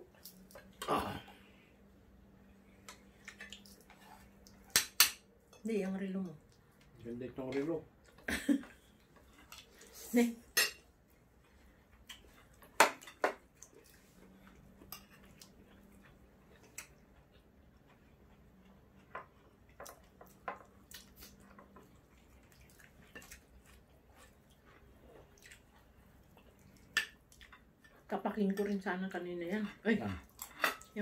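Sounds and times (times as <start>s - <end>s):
faint chewing: 2.4s - 4.8s, 6.2s - 10.1s, 11.0s - 28.8s
cutlery clicking on plates: 4.7s - 5.6s, 30.4s - 30.9s.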